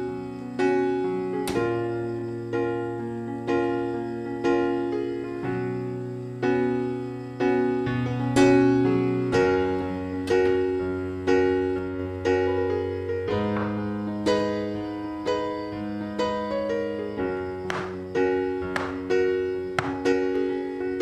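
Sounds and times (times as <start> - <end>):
slow piano tune: 0.0 - 21.0.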